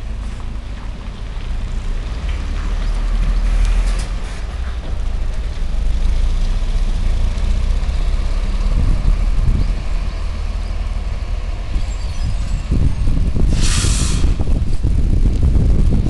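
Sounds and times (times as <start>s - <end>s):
bus engine driving away: 0.0s - 16.0s.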